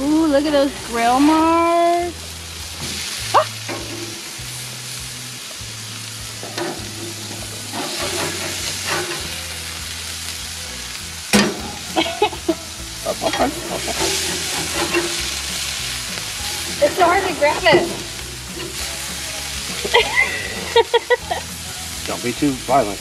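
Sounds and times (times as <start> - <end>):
burger patties sizzling: 0.0 - 23.0
sharp metal clank: 11.3 - 11.8.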